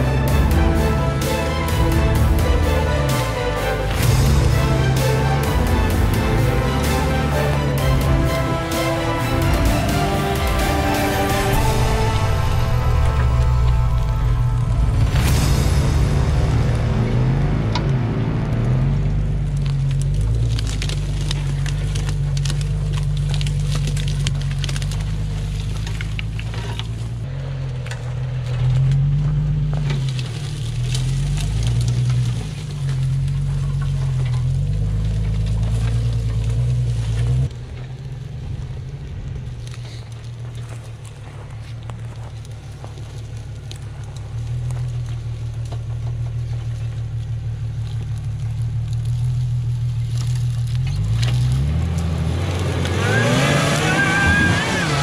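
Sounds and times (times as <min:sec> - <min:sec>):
engine revving: 0:00.0 - 0:38.9, 0:40.6 - 0:55.0
branches scraping vehicle body: 0:17.7 - 0:55.0.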